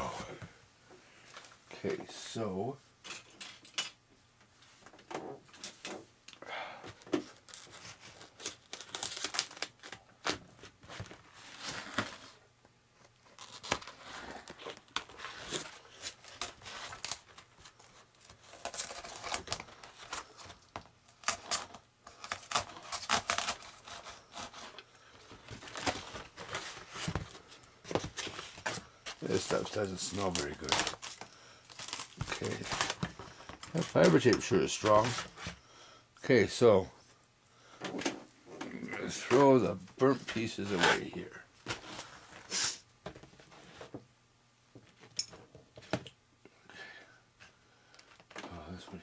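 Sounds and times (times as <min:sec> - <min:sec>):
tape and foam ripping: 0:07.3 - 0:10.5, 0:13.2 - 0:20.6, 0:21.2 - 0:24.8, 0:28.0 - 0:35.2.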